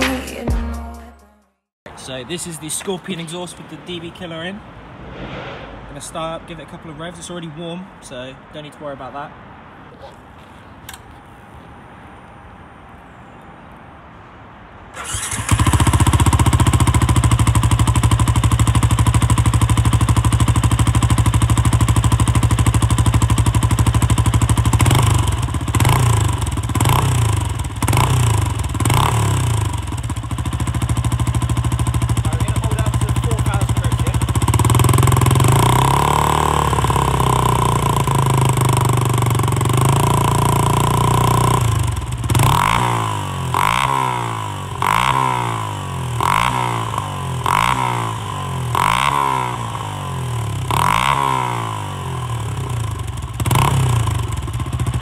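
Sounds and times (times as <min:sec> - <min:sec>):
motorcycle engine idling and revving: 0:15.0 - 0:55.0.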